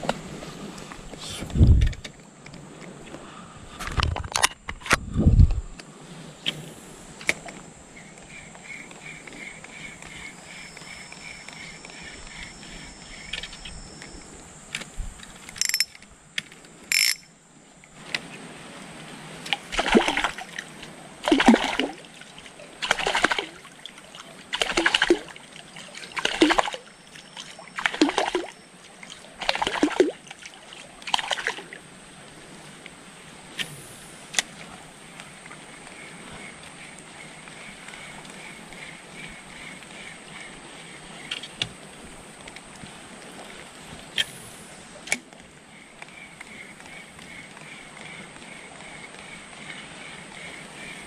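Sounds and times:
paddle splashing in water: 18.0s - 51.0s.

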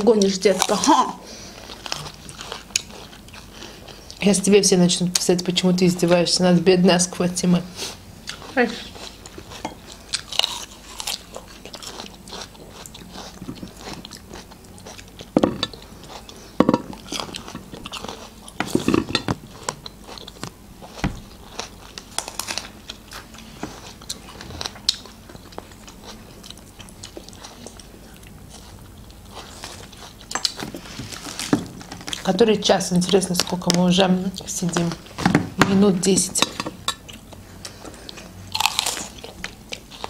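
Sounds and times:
people crunching hard fruit: 0.1s - 4.1s, 8.2s - 32.3s, 36.8s - 40.0s.

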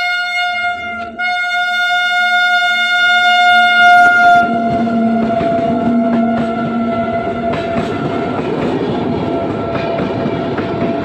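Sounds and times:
train horn long note: 0.0s - 8.5s
train rumbling and clattering past: 3.8s - 11.0s.

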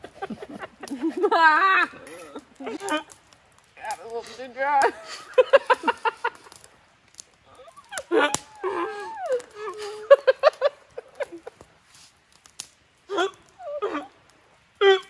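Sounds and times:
people talking: 3.8s - 5.0s.

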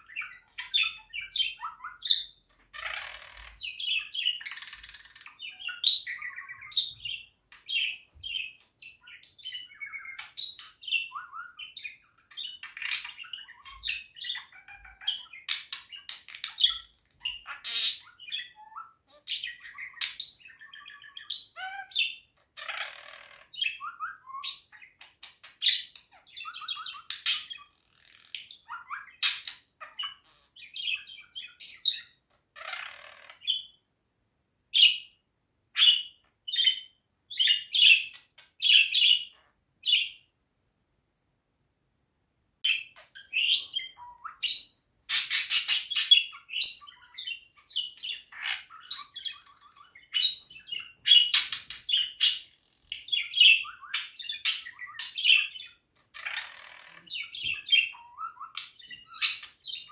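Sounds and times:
budgerigar chattering: 0.0s - 25.0s, 42.7s - 59.9s.

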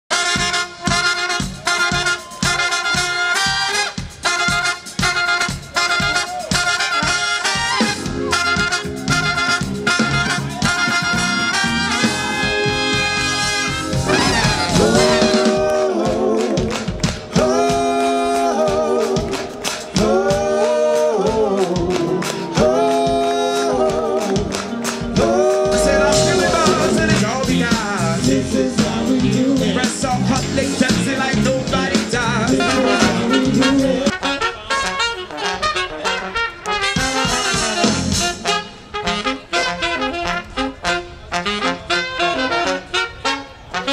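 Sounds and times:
brass funk band playing: 0.1s - 43.9s
drum strokes: 7.8s - 18.0s, 23.9s - 30.2s
people singing in harmony: 14.0s - 30.0s, 32.4s - 34.1s.

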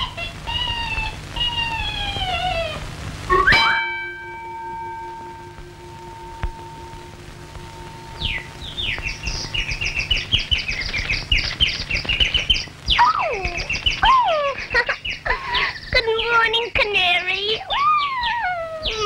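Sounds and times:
cartoon bird chirping: 0.0s - 3.7s, 8.2s - 19.0s
film soundtrack crackle: 0.0s - 17.8s.

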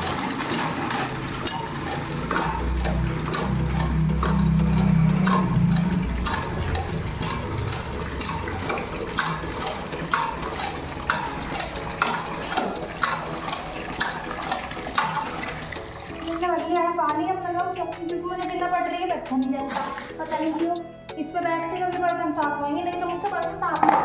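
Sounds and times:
water gushing: 0.0s - 17.0s, 19.6s - 20.6s
hand pump squeaky clank: 0.0s - 17.5s.

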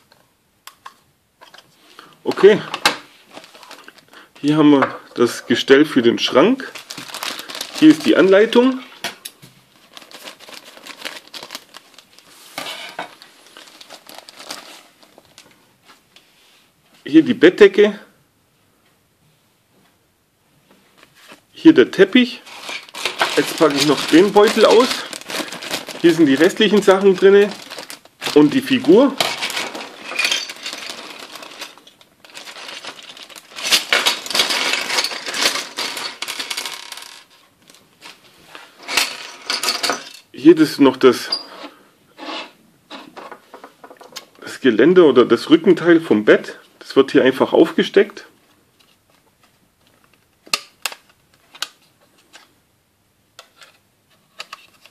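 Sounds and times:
plastic bag crinkling: 3.3s - 4.1s, 6.6s - 8.8s, 9.7s - 15.6s, 22.4s - 39.3s
plastic parts clattering on table: 12.6s - 14.6s, 22.5s - 38.2s, 38.8s - 40.3s.

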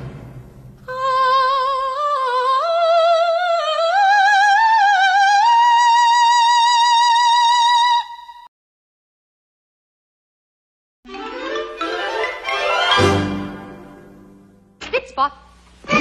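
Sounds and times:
woman singing operatic line: 0.8s - 8.5s.

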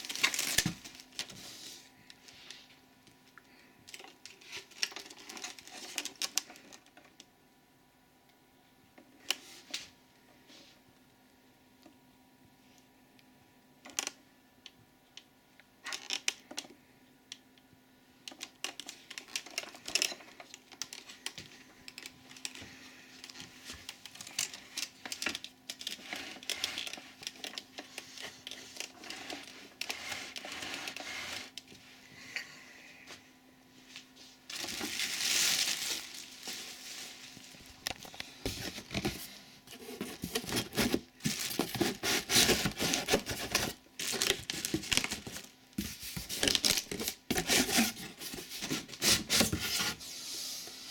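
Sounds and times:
plastic film crinkling: 0.0s - 1.4s, 34.4s - 39.2s, 39.8s - 49.1s
plastic parts clicking and knocking: 18.2s - 31.7s.

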